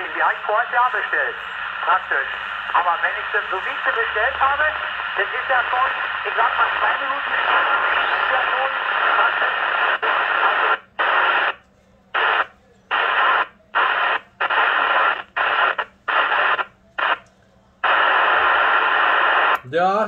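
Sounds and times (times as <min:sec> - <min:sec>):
radio static hiss: 0:00.0 - 0:17.2, 0:17.8 - 0:19.7.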